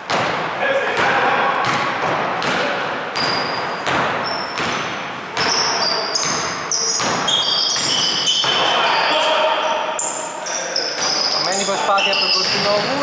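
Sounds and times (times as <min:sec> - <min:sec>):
basketball bouncing on wooden floor: 0:01.0 - 0:08.7, 0:12.4 - 0:13.0
sneakers squeaking on floor: 0:01.0 - 0:13.0.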